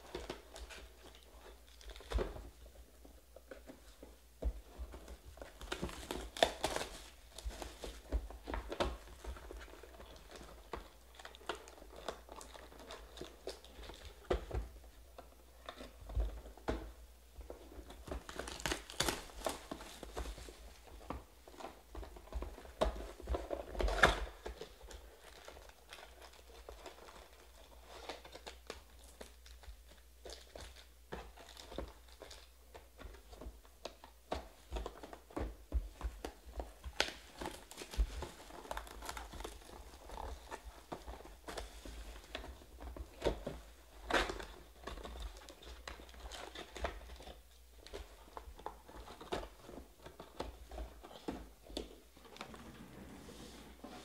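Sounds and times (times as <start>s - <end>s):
cardboard rustling: 0.0s - 54.0s
foil wrappers crinkling: 17.8s - 21.0s.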